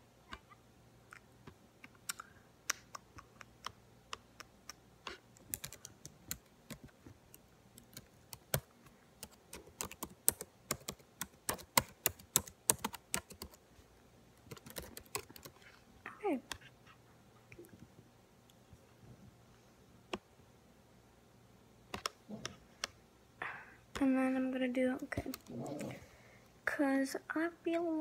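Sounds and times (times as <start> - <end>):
computer keyboard typing: 2.0 - 13.6, 14.4 - 15.7, 21.9 - 22.2, 25.1 - 25.5.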